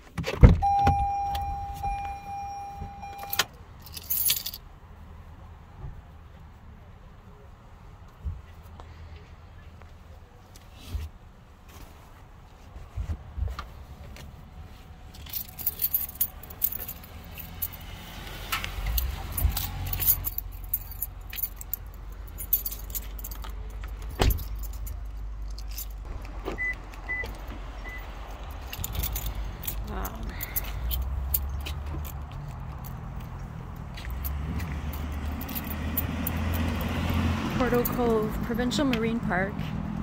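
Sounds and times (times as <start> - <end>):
short high beeps: 0.6 - 3.4
keys jangling: 0.6 - 4.6, 15.1 - 18.0, 18.8 - 26.1, 28.4 - 36.9.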